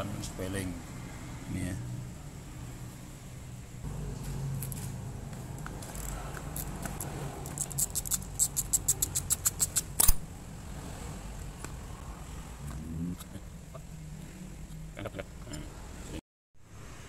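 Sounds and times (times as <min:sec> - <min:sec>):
ratchet wrench clicking: 0:05.9 - 0:10.2.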